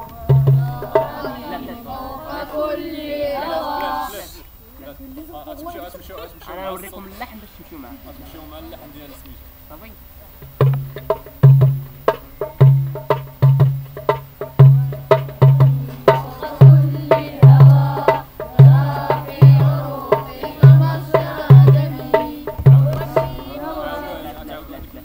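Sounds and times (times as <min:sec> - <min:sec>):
drum beating deep thumps: 0:00.0 - 0:01.8, 0:10.4 - 0:23.7
voices singing: 0:00.0 - 0:05.0, 0:14.2 - 0:25.0
sharper drum taps: 0:10.4 - 0:12.2.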